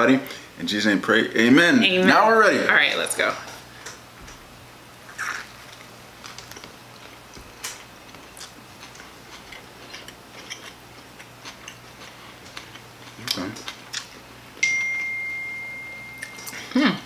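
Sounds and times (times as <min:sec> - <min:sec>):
people chewing with mouth smacks: 0:05.1 - 0:14.3, 0:16.2 - 0:16.8.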